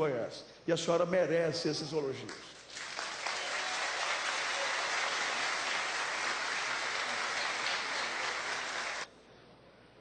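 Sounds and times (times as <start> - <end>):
large crowd applauding: 2.7 - 9.1.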